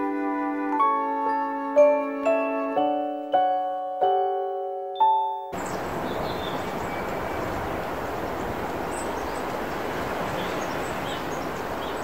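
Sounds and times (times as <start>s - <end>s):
faint bird chirps: 5.6s - 9.5s
steady rushing background noise: 5.6s - 12.0s.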